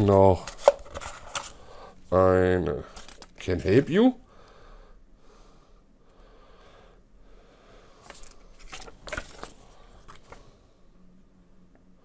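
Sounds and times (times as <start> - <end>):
paper rustling: 0.0 - 1.6, 2.8 - 3.9, 8.0 - 10.4
paper crackling: 8.0 - 10.4.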